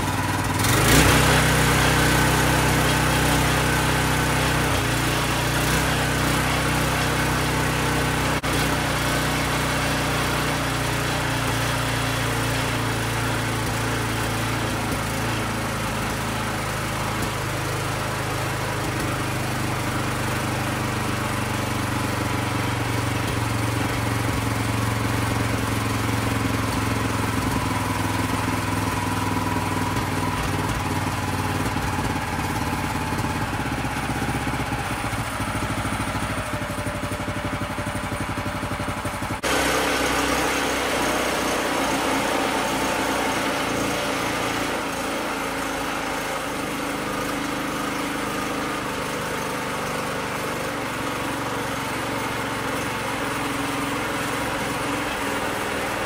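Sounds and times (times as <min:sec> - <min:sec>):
small engine running: 0:00.0 - 0:56.0.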